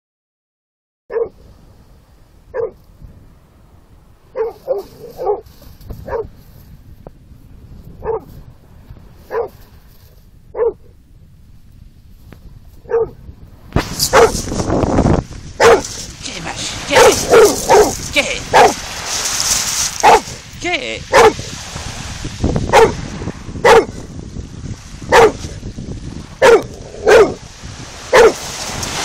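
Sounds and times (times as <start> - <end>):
dog barking: 1.1 - 1.4, 2.5 - 2.8, 4.3 - 6.3, 8.0 - 8.3, 9.3 - 9.6, 10.5 - 10.9, 12.8 - 13.2, 14.1 - 14.4, 15.6 - 16.0, 16.9 - 18.8, 20.0 - 20.4, 21.1 - 21.5, 22.7 - 23.0, 23.6 - 24.0, 25.1 - 25.4, 26.4 - 27.4, 28.1 - 28.4.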